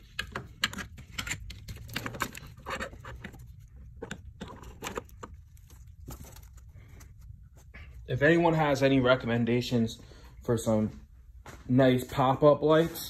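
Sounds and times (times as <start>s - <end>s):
scraping and clicking of rubber grommet: 0.0s - 7.9s.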